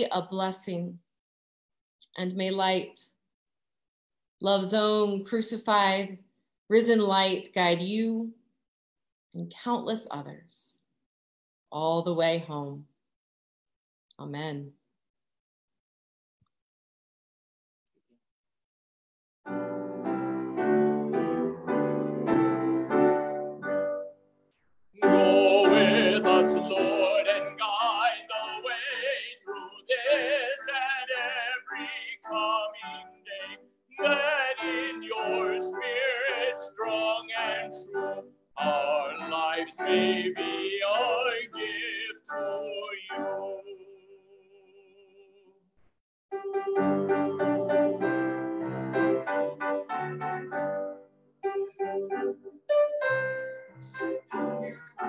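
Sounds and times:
keyboard chords: 19.5s - 24.3s, 25.0s - 43.6s, 46.3s - 55.0s
operatic singing: 25.0s - 45.4s.

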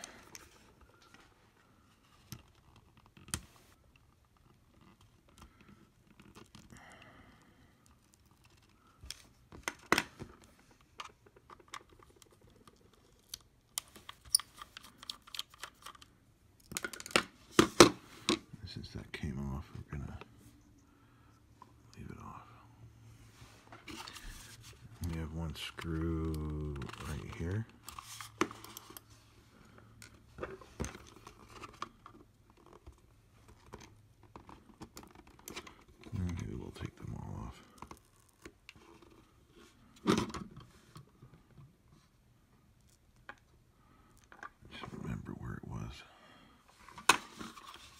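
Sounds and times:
faint low hum: 17.9s - 47.8s.

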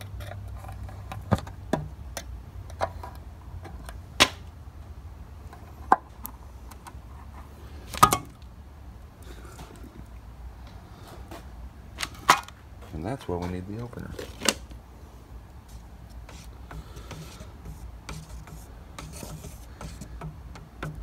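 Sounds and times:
steady low hum: 0.0s - 21.0s
metal knocking on metal: 19.7s - 21.0s.

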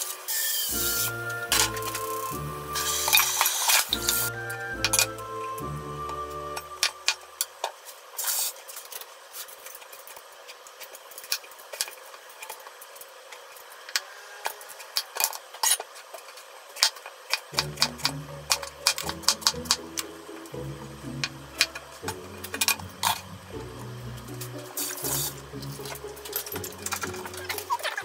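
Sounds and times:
vegetable peeler scraping: 0.0s - 5.1s
background music: 0.7s - 7.5s, 17.5s - 28.0s.

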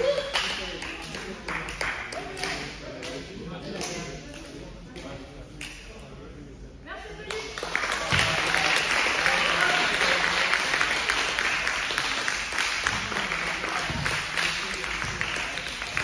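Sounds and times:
small group applauding: 0.0s - 3.2s, 7.2s - 16.0s.

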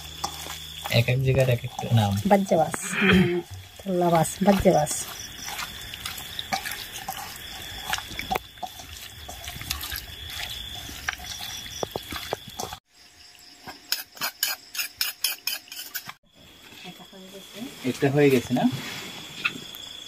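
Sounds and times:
hands squelching meat: 0.0s - 12.8s.

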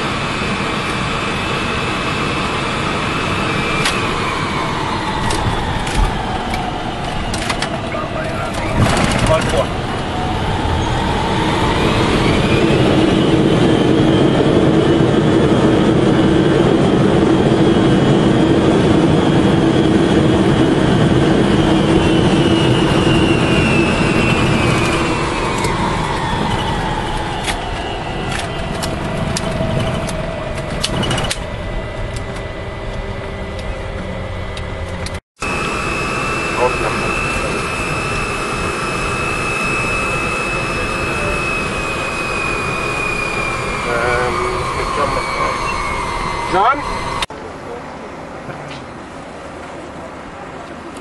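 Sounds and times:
jet engines whining: 0.0s - 51.0s.

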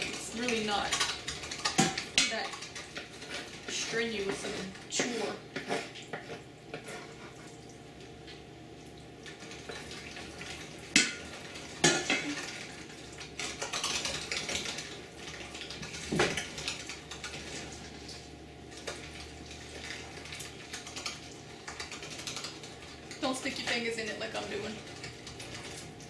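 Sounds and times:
meat grinder clanking and scraping: 9.6s - 18.1s.

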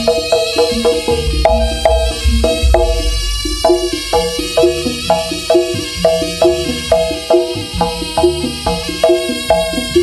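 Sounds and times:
struck pitched notes: 0.0s - 10.0s
deep low beats: 0.9s - 7.1s.

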